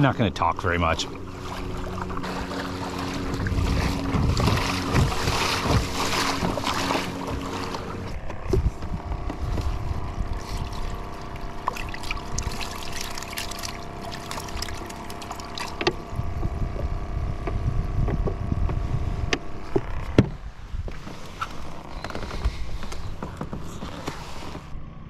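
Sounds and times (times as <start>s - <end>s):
electric motor humming: 1.0s - 20.3s
wind rumbling on microphone: 1.0s - 24.7s
sharp knocks against hull: 1.6s - 9.8s, 11.6s - 16.0s, 16.8s - 21.0s.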